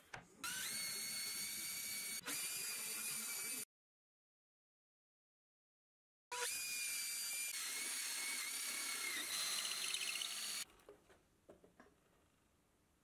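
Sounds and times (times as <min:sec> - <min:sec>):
cordless drill whine: 0:00.4 - 0:03.6, 0:06.4 - 0:10.6.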